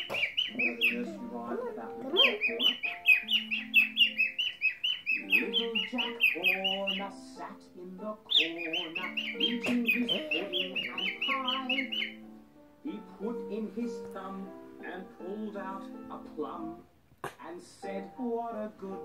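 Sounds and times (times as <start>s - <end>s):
cockatiel chirping: 0.0s - 1.3s, 2.1s - 7.1s, 8.3s - 12.2s
background music: 0.0s - 19.0s.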